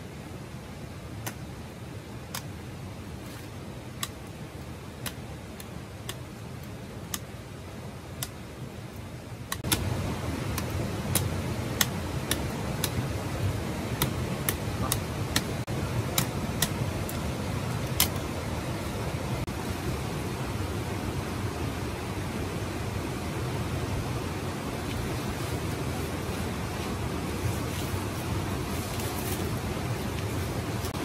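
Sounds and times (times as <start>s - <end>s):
rushing background noise: 0.0s - 31.0s
machete chopping bamboo: 10.5s - 13.1s, 13.9s - 18.2s.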